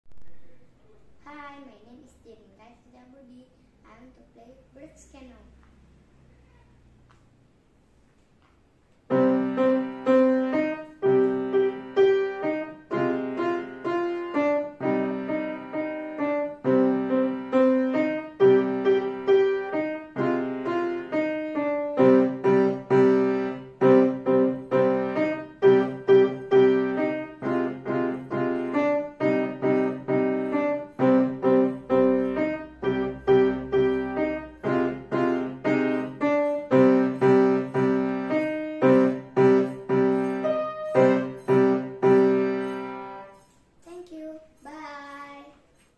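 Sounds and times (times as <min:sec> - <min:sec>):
solo grand piano piece: 0:09.0 - 0:43.5.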